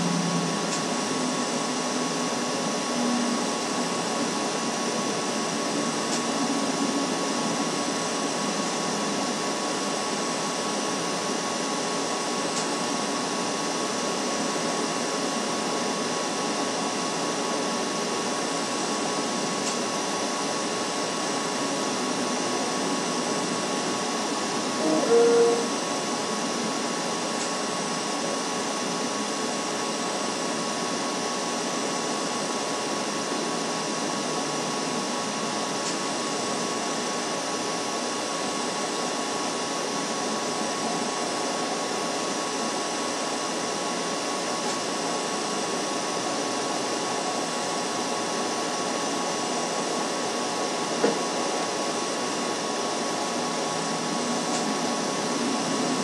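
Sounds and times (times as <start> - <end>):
faint steady tone: 24.8 - 25.8.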